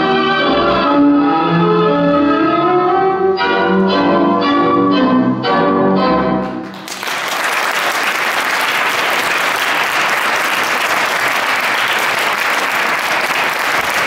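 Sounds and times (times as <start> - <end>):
audience applause: 6.6 - 14.0.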